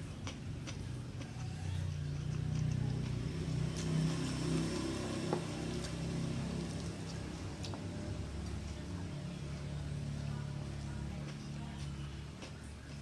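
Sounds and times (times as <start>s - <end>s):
faint eating clicks: 0.0s - 13.0s
vehicle motor hum passing: 0.0s - 13.0s.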